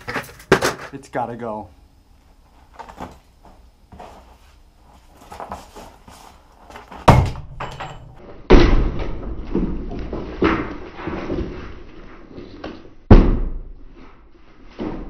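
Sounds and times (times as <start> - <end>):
debris clattering: 7.0 - 8.2
sledgehammer smashing wooden bench: 7.0 - 11.6, 13.1 - 13.7.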